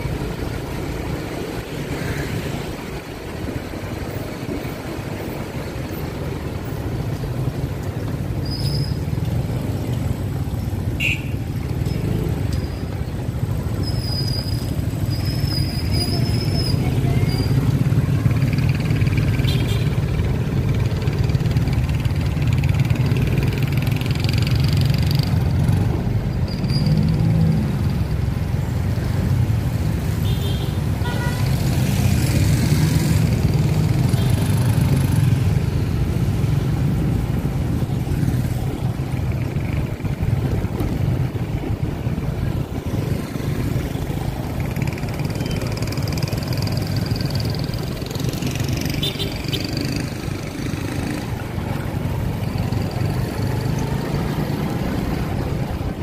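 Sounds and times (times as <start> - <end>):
road noise: 0.0 - 56.0
motorcycle engine running: 32.1 - 56.0.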